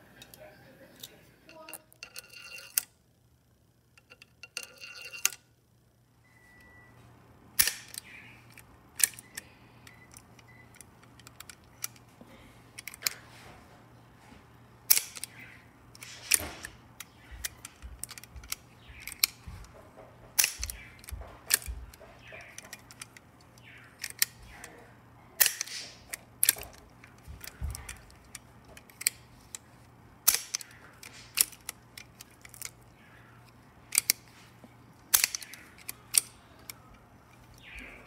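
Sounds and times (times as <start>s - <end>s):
steel parts handling clatter: 0.2s - 2.9s, 4.0s - 5.4s, 25.4s - 38.0s
rifle bolt action clicking: 7.6s - 12.1s, 14.9s - 19.4s, 20.4s - 24.6s, 25.4s - 29.6s, 30.2s - 34.2s, 35.1s - 37.8s.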